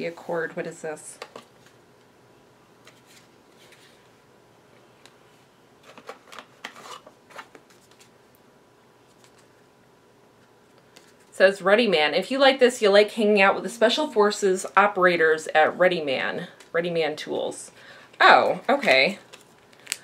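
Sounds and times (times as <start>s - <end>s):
packaging rustling and scratching: 5.8s - 8.1s.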